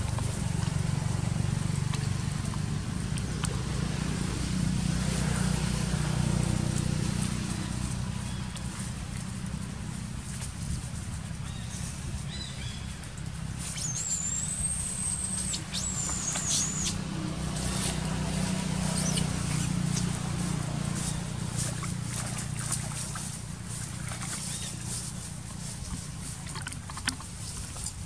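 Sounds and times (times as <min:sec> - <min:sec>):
small knocks and splashes: 0:00.0 - 0:13.9, 0:17.3 - 0:28.0
high-pitched whistling calls: 0:13.6 - 0:17.1, 0:18.9 - 0:19.7.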